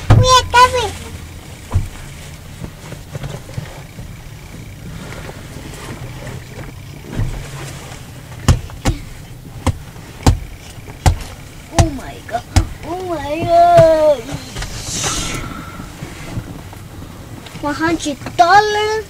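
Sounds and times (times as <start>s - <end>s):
engine and road rumble: 0.0s - 19.0s
sharp taps: 8.4s - 14.5s.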